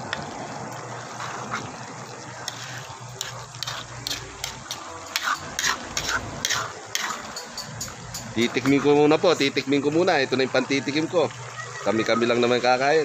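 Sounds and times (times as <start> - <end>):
thick liquid sloshing: 0.0 - 12.7
metal ladle scraping a pan: 2.4 - 9.0.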